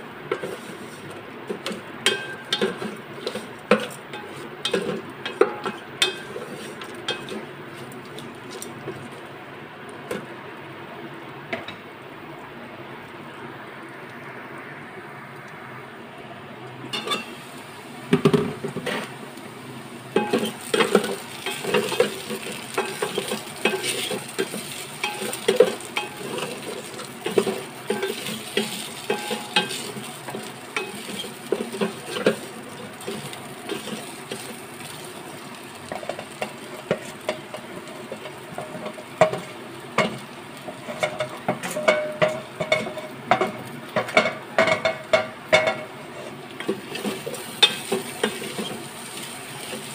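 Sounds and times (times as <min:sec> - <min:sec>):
okra sizzling in oil: 0:00.0 - 0:49.9
spatula scraping metal pot: 0:20.2 - 0:30.1.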